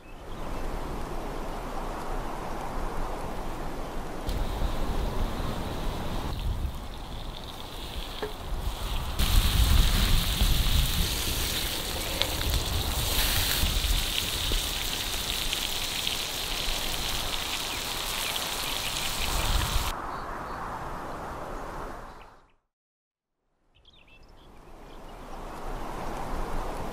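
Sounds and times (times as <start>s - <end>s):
steak sizzling on a griddle: 4.3s - 19.9s.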